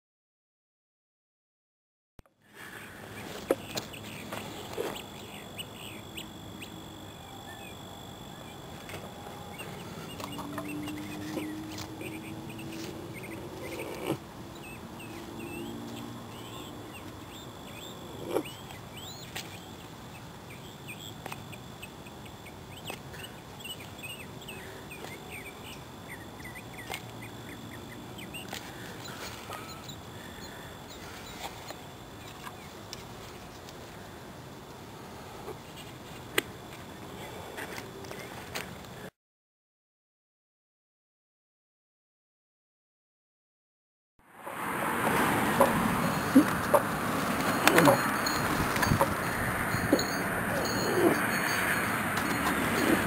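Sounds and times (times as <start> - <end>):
small birds chirping: 2.5 - 34.2, 45.5 - 53.0
low drawn-out bird calls: 2.6 - 32.7, 45.4 - 53.0.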